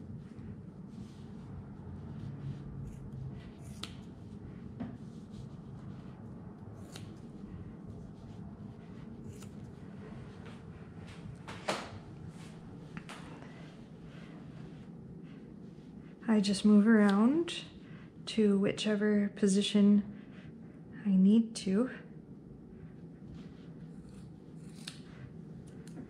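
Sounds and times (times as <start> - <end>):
scissors snipping wool: 3.6 - 4.1, 6.8 - 7.3, 9.3 - 9.6, 24.0 - 25.1.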